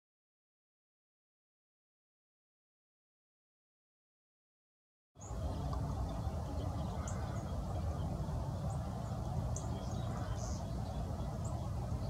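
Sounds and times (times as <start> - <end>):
small birds chirping: 5.2 - 12.0
wind rumble on microphone: 5.2 - 12.0.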